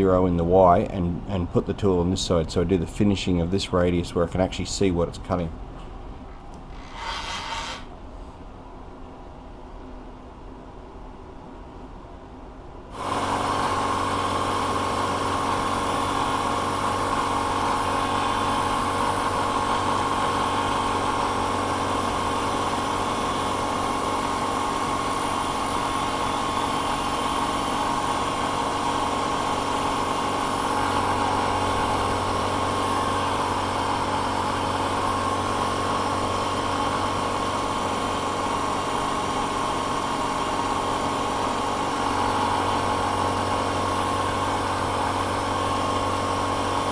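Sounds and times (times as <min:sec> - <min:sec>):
milling machine humming and whining: 0:13.0 - 0:46.9.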